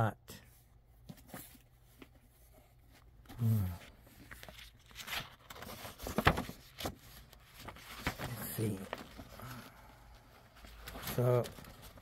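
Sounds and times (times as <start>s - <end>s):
book pages rustling: 1.0s - 12.0s
man saying hmm: 3.4s - 3.9s.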